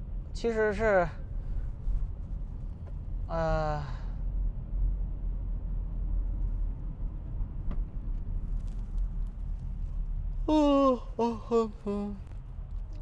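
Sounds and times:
car road rumble inside cabin: 0:00.0 - 0:13.0
person sighing: 0:10.5 - 0:12.2.

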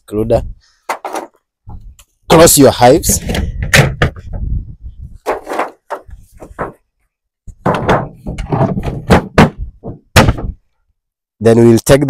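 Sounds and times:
wooden knocks and scrapes: 0:00.8 - 0:02.0, 0:03.1 - 0:10.7.

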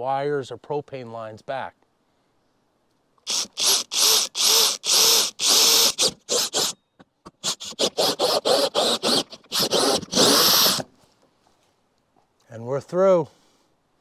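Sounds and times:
drill with hole saw cutting wood: 0:03.3 - 0:06.8, 0:07.4 - 0:10.9.

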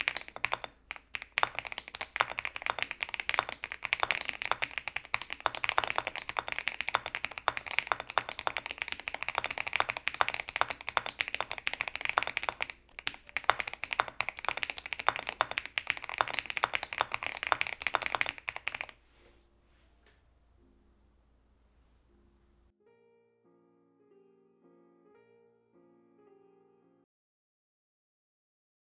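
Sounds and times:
fast mechanical keyboard typing: 0:00.0 - 0:18.9.

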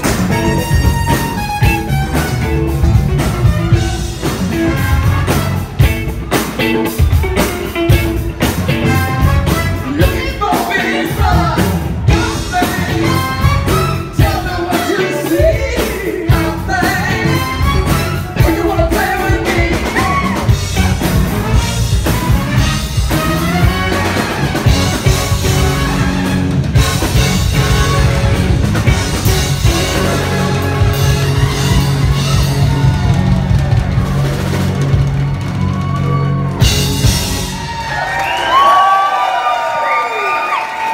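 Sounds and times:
live band playing loudly: 0:00.0 - 0:40.9
man singing: 0:09.8 - 0:20.6.

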